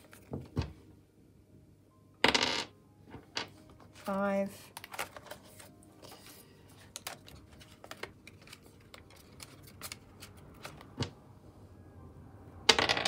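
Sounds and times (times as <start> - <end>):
plastic banknotes crinkling: 4.0 - 11.0.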